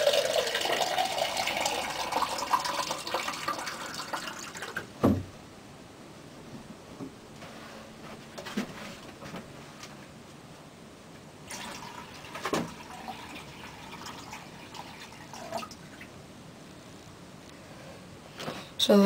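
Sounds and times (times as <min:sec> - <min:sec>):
water pouring and splashing: 0:00.0 - 0:04.9, 0:11.5 - 0:16.1.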